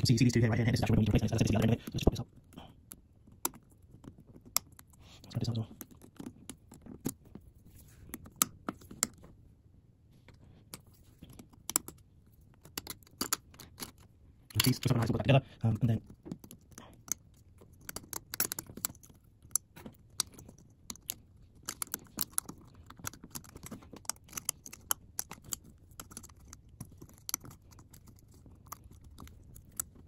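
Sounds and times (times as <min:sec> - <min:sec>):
fingers clicking and tapping phone parts: 0:00.1 - 0:09.4, 0:10.2 - 0:30.0.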